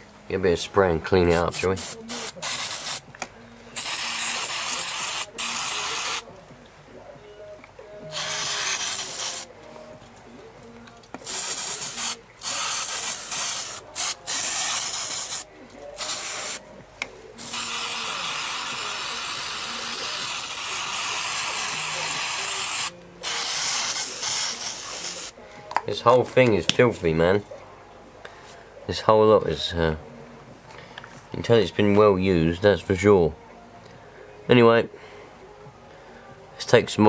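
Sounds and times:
aerosol spray hissing: 0:01.4 - 0:03.0, 0:03.8 - 0:06.2, 0:08.1 - 0:09.5, 0:11.2 - 0:16.6, 0:17.4 - 0:25.4.

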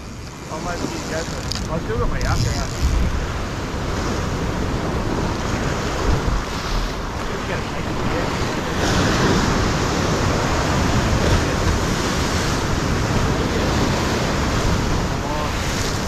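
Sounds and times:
ocean waves washing against rocks: 0:00.0 - 0:16.0.

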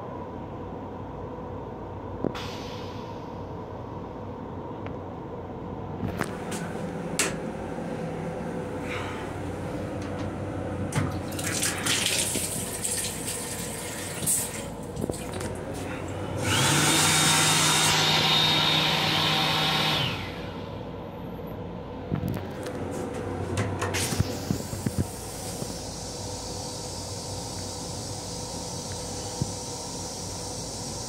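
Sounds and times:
hand dryer blowing: 0:11.0 - 0:20.7
faucet running water into sink: 0:11.3 - 0:15.4.

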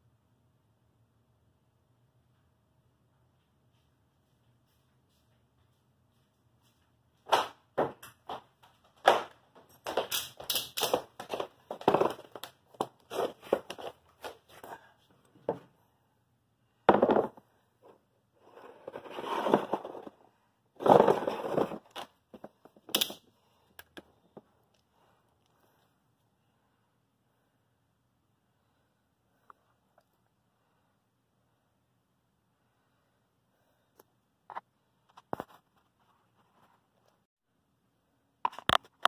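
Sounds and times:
knocks and thumps: 0:16.9 - 0:17.5.

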